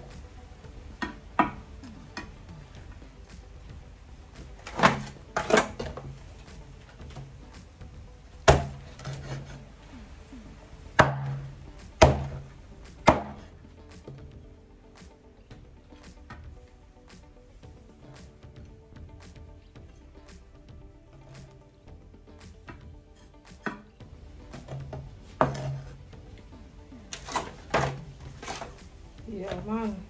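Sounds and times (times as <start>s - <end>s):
knife chopping chicken: 12.0s - 12.4s, 13.0s - 13.4s.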